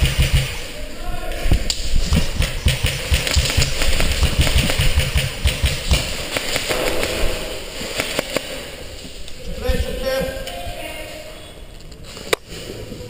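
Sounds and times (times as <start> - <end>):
airsoft rifle firing bursts: 0.0 - 0.8, 1.5 - 8.5.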